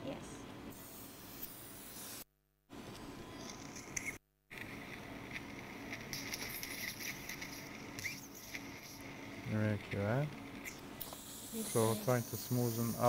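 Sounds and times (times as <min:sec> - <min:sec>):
surgical suction hiss: 0:06.1 - 0:09.2, 0:11.0 - 0:13.0.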